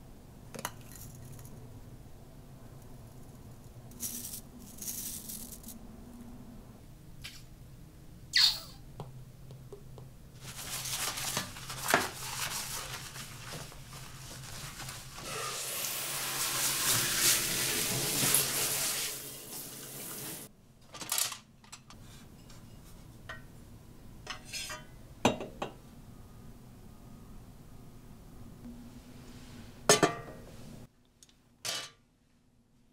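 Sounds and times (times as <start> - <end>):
dish brush scraping a basin: 10.4 - 20.5
tap water running: 15.2 - 20.5.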